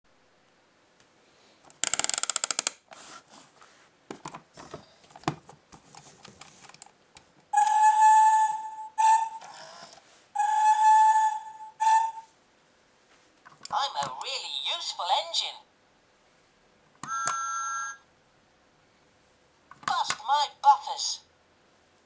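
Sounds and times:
plastic clicks: 1.7 - 2.8
toy steam whistle toot: 7.5 - 12.4.

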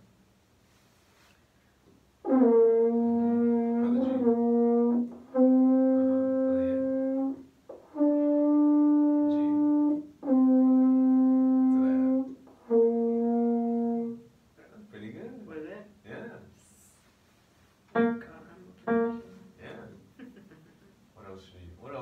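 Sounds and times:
french horn long notes: 2.2 - 14.3.

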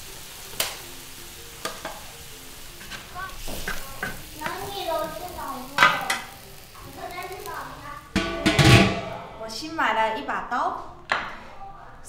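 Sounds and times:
sauce sizzling and bubbling: 0.0 - 8.4
metal spatula scraping wok: 2.7 - 4.2, 8.1 - 9.6.

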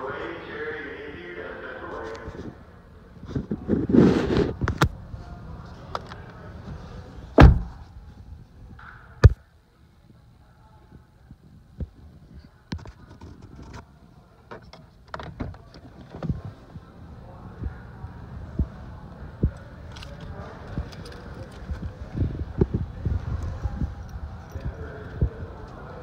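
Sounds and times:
car door thunk: 7.4 - 7.8.

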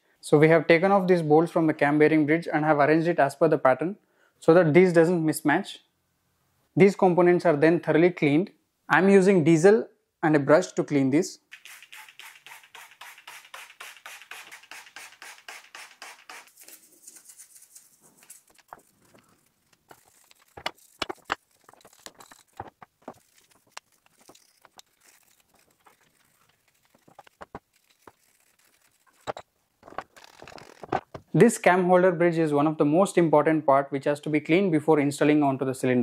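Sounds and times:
toothbrush scrubbing metal: 11.5 - 29.4
metal parts clicking and knocking: 11.8 - 31.3.

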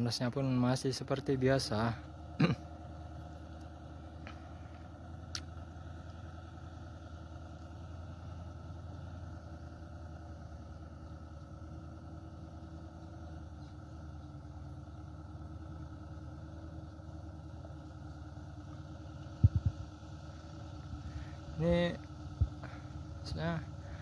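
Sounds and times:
truck diesel engine running: 0.0 - 24.0.

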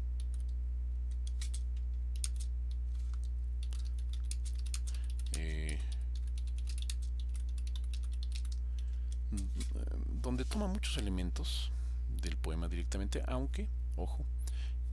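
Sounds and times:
low electrical hum: 0.0 - 14.9
keyboard typing clicks: 0.2 - 9.7.

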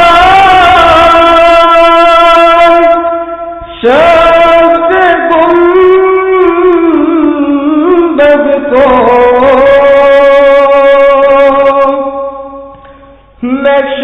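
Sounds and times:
person singing long held notes: 0.0 - 14.0.

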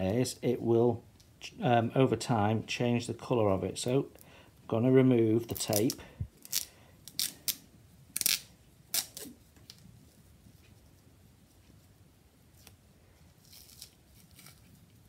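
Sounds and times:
sticky tape ripping: 5.5 - 9.8, 13.4 - 14.8.

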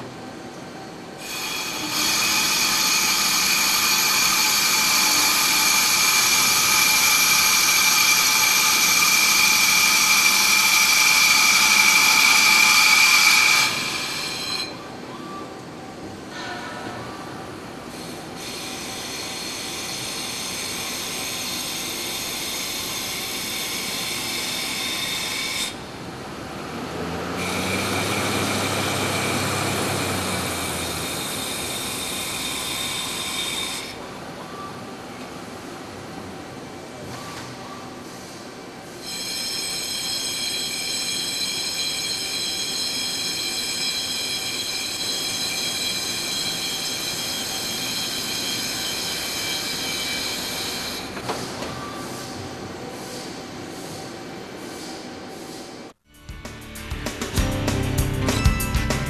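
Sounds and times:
lathe high-pitched whine: 0.0 - 15.1, 17.9 - 25.9, 27.3 - 35.5, 38.9 - 51.2
metal cutting noise: 1.2 - 14.8, 17.9 - 34.0, 39.0 - 52.4.

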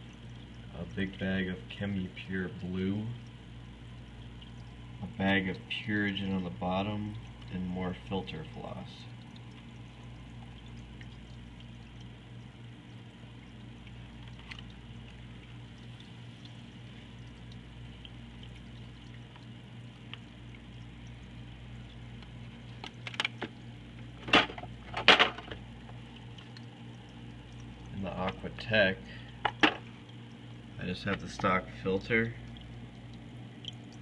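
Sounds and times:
low pump hum: 0.0 - 34.0
water pouring from filter: 0.0 - 34.0.

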